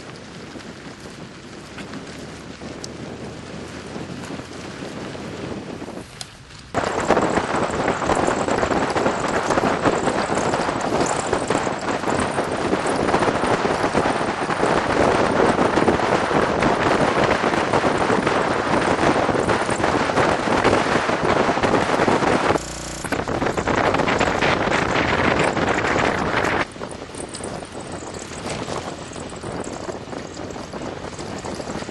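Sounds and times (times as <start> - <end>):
car driving on rough dirt track: 0.0 - 31.9
rattles from bumpy road: 0.0 - 31.9
wind buffeting microphone: 0.0 - 31.9.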